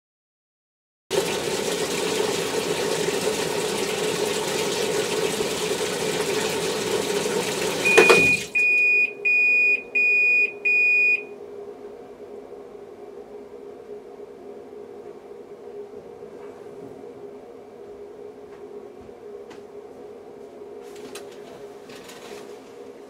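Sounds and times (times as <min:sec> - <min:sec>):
washing machine knock: 0:01.1 - 0:08.9
washing machine running: 0:01.1 - 0:23.0
short high buzzer beeps: 0:07.8 - 0:11.2.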